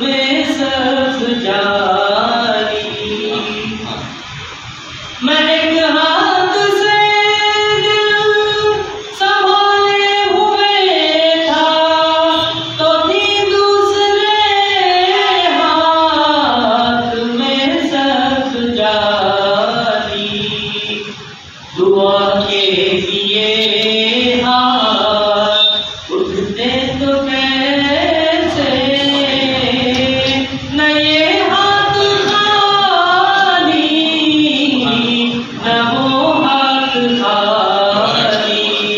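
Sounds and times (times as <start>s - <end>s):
man singing devotional song: 0.0s - 4.2s, 5.2s - 38.9s.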